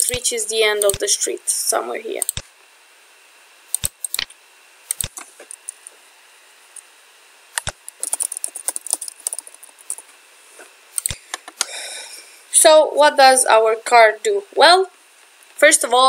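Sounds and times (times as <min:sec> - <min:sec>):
keyboard typing: 0:00.0 - 0:01.0, 0:03.8 - 0:04.3, 0:04.9 - 0:05.9, 0:07.6 - 0:10.1
clicks: 0:00.8 - 0:01.0, 0:11.0 - 0:11.7.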